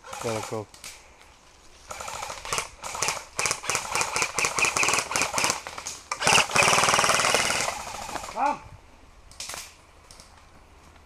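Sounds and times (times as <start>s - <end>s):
airsoft rifle automatic fire: 1.9s - 5.6s, 6.2s - 8.3s.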